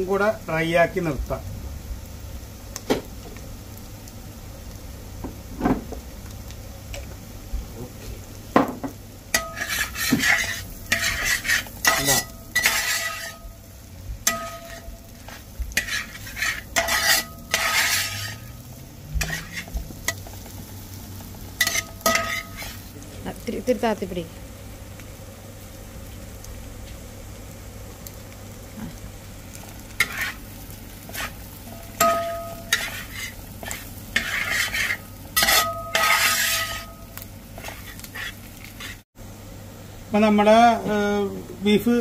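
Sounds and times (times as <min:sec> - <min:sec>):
light sizzle: 0:00.0 - 0:42.0
knocks on a pan: 0:05.2 - 0:05.9, 0:08.5 - 0:09.0
spatula scraping a pan: 0:09.3 - 0:13.6, 0:14.2 - 0:20.6, 0:21.6 - 0:22.9, 0:29.9 - 0:39.0.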